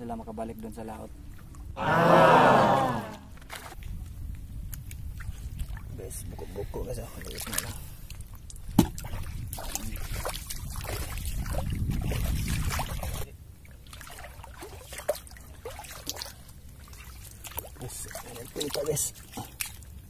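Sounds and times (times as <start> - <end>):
seawater splashing: 8.9 - 20.0.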